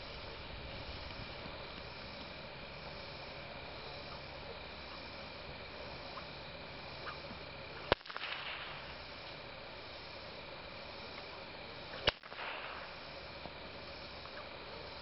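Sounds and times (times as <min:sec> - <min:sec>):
whip crack: 0:07.8 - 0:09.3, 0:12.0 - 0:13.4.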